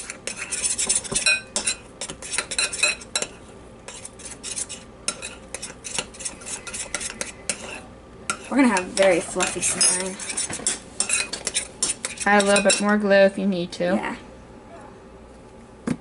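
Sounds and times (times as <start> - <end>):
metal spoon stirring slime in glass bowl: 0.0 - 12.9.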